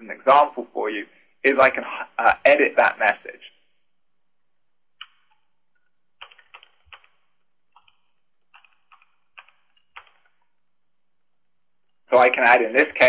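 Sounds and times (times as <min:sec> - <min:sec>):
faint keyboard typing: 0:05.0 - 0:10.9.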